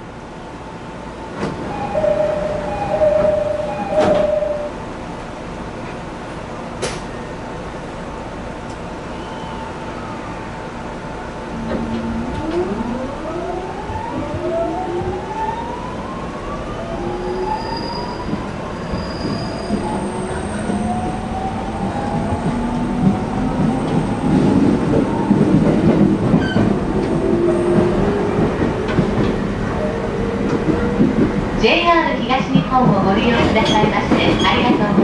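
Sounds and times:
train inverter whining tones: 1.6s - 5.0s, 11.2s - 31.1s.

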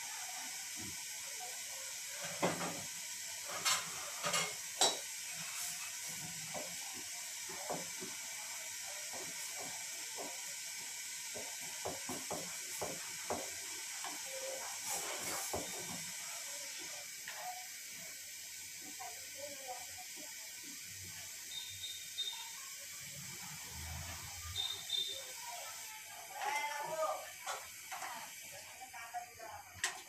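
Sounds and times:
gas stove burner hissing: 0.0s - 30.0s
spoon knocking against pot: 11.3s - 13.5s.

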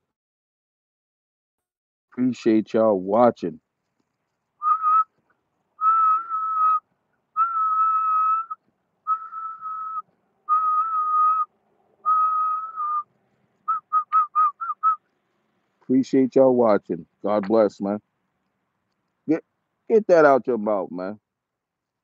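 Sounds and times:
person whistling: 4.6s - 5.1s, 5.8s - 6.8s, 7.4s - 11.5s, 12.1s - 13.1s, 13.7s - 15.0s.

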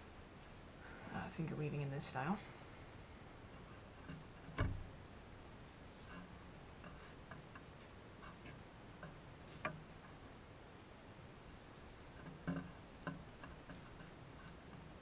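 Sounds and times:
hands working yarn clicks: 6.1s - 10.2s, 12.0s - 15.0s.

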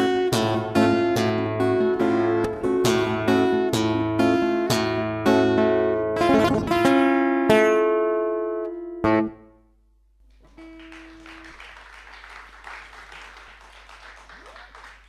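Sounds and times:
guitar chord ringing: 0.0s - 9.8s
audience applauding: 10.4s - 15.0s.

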